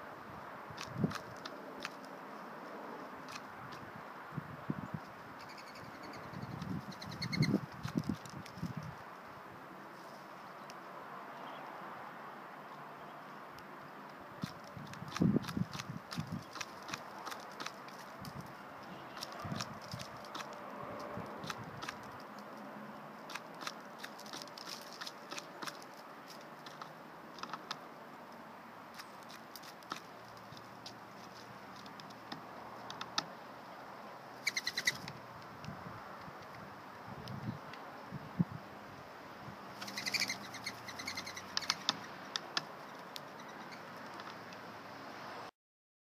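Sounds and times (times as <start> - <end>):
woodpecker tapping on wood: 14.4 - 20.6, 21.2 - 22.6, 23.2 - 27.8, 28.9 - 31.0, 31.7 - 33.3, 34.4 - 35.2, 39.8 - 44.6
dove wings whistling: 39.8 - 41.9.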